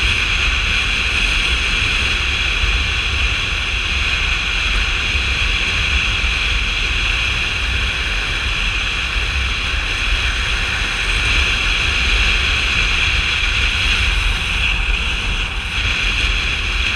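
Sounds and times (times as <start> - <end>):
wind buffeting microphone: 0.0 - 16.9.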